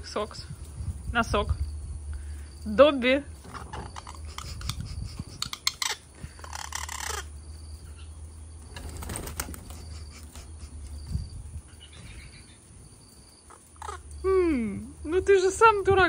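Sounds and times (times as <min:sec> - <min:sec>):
bird wings flapping: 0:08.6 - 0:10.4.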